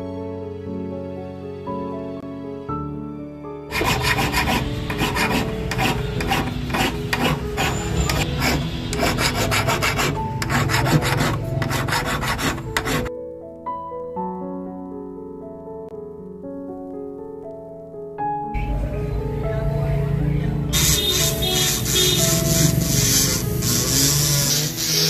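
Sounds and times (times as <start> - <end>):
piano music: 0.0 - 25.0
hand file rasping on metal: 3.7 - 13.1, 20.8 - 25.0.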